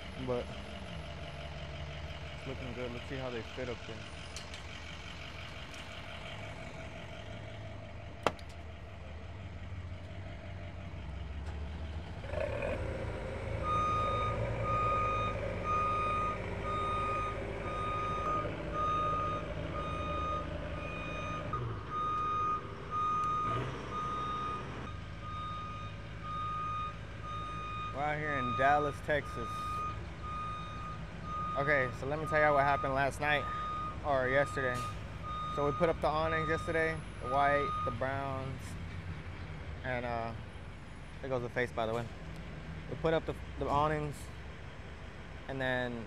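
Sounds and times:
vehicle engine running: 0.0s - 26.4s
reversing alarm beeping: 13.6s - 38.2s.

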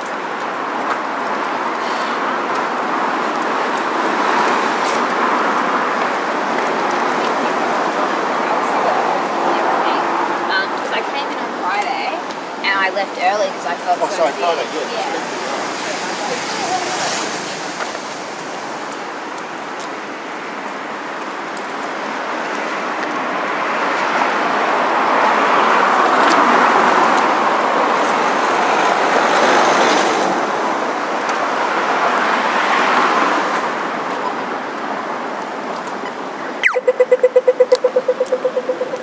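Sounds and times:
vehicles passing: 0.0s - 39.0s
loud rapid pulsing tone: 36.6s - 39.0s.

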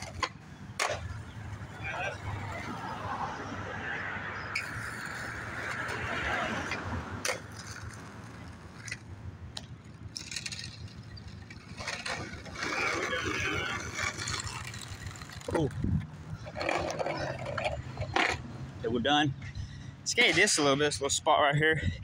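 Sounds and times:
skateboard clacks: 0.0s - 1.3s, 4.6s - 15.8s
skateboard wheels rolling on pavement: 0.0s - 21.2s.

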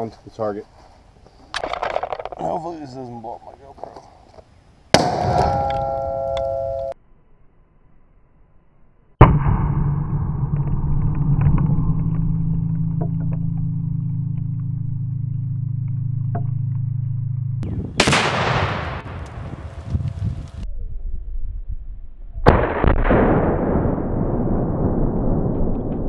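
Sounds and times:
explosive target blast: 4.9s - 6.0s, 9.2s - 13.9s, 17.6s - 19.7s, 22.4s - 26.0s
steady low hum: 9.0s - 20.7s.

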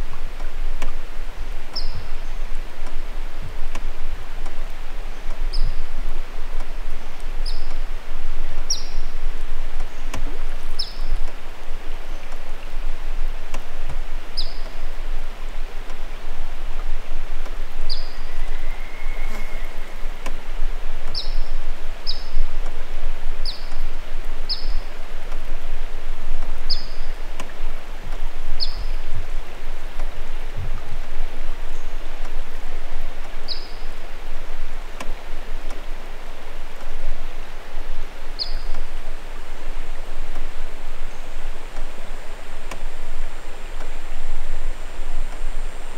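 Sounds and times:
water swishing around canoe: 0.0s - 45.9s
bird chirping: 1.7s - 2.4s, 5.5s - 5.8s, 7.4s - 7.8s, 8.6s - 9.1s, 9.8s - 11.2s, 14.4s - 14.8s, 17.9s - 20.0s, 21.1s - 22.4s, 24.4s - 24.9s, 26.7s - 27.2s, 28.6s - 29.1s, 33.5s - 34.0s, 38.4s - 38.9s.

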